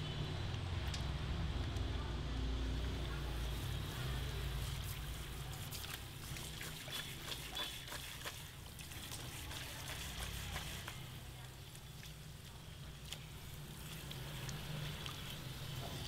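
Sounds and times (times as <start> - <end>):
shower sprayer splashing water: 2.9 - 16.0.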